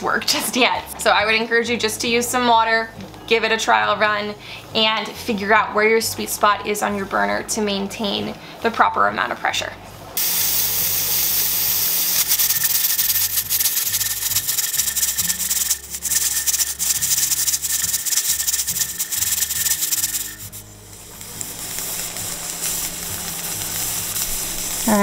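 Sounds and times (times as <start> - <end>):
hiss of escaping steam: 10.2 - 25.0
pressure canner regulator jiggling: 12.2 - 20.5.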